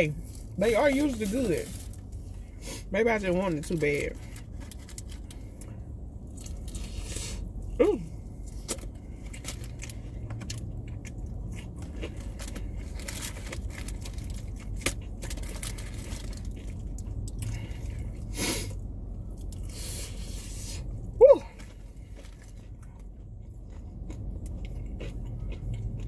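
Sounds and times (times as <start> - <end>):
crunchy chewing: 8.4 - 18.3, 21.5 - 26.0.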